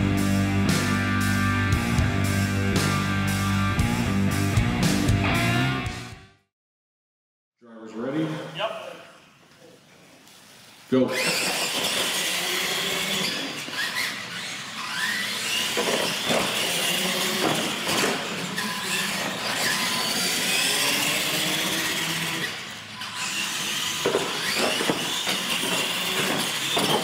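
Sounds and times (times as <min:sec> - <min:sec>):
electric toy truck motors whining: 0:11.2 - 0:27.0.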